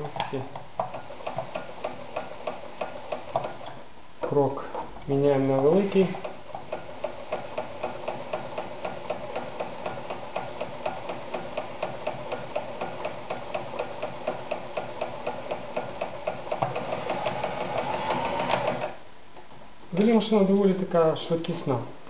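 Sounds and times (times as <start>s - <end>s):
sewing machine stitching: 0.9s - 3.7s, 5.7s - 19.0s.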